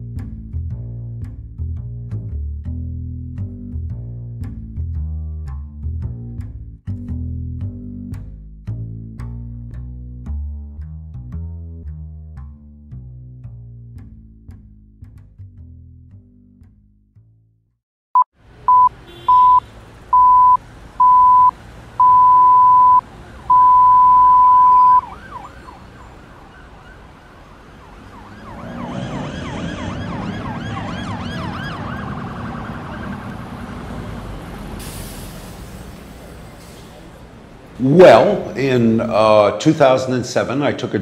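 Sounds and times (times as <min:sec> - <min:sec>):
high electronic beep: 0:18.2 - 0:19.6, 0:20.2 - 0:25.0
warbling siren wail: 0:23.5 - 0:34.4.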